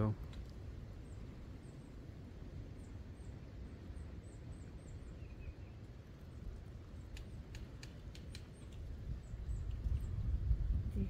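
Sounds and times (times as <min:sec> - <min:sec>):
bird chirping: 0:02.7 - 0:10.3
sharp ticks: 0:07.0 - 0:08.9.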